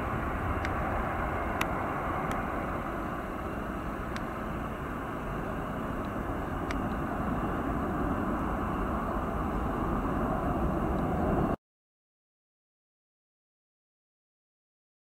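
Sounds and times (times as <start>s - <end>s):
jet engines roaring: 0.0s - 11.6s.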